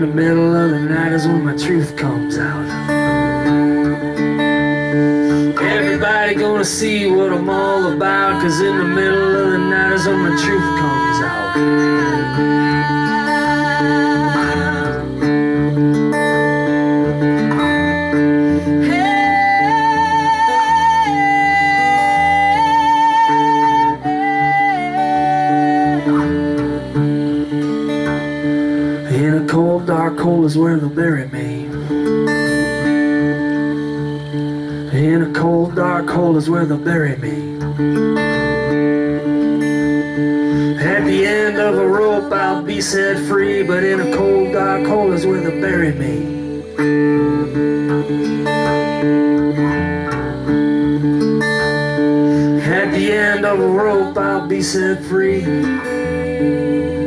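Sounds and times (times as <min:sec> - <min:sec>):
woman singing: 0:00.0 - 0:15.7, 0:18.8 - 0:28.4, 0:40.5 - 0:57.0
acoustic guitar: 0:00.0 - 0:57.0.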